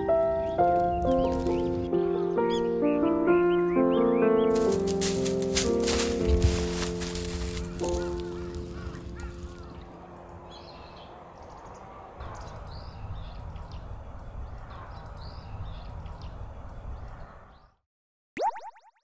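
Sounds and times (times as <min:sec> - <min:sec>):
background music: 0:00.0 - 0:10.8
birds calling: 0:00.0 - 0:17.7.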